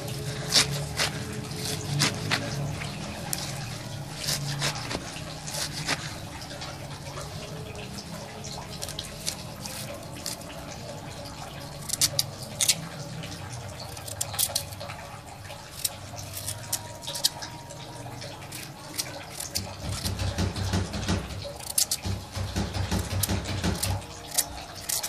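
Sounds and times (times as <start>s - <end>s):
knife tapping metal tray: 19.5s - 25.0s.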